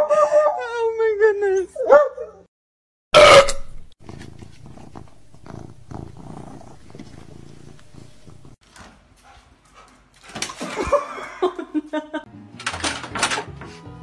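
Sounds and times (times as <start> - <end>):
kitten purring: 4.0 - 8.6.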